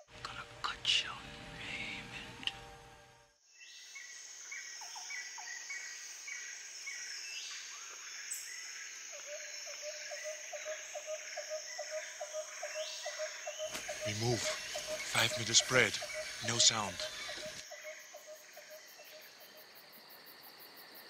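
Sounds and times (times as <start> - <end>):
high insect drone: 0.0 - 2.6, 3.6 - 21.0
regular low call: 13.9 - 17.6.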